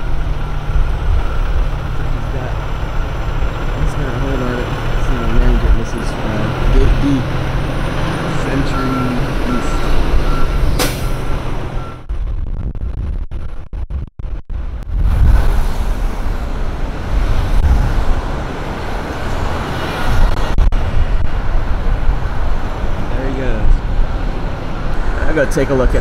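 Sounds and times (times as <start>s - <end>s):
traffic noise: 0.0s - 12.1s, 14.7s - 26.0s
truck reversing beeper: 0.0s - 12.1s
heavy truck engine rumble: 0.0s - 26.0s.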